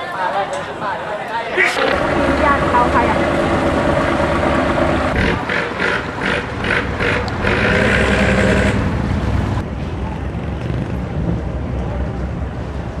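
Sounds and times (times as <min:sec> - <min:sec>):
boat engine running: 0:01.6 - 0:09.6.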